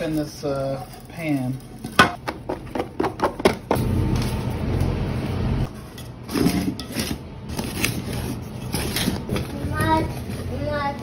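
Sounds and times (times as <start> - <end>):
dough knocking in metal pan: 2.0 - 3.8.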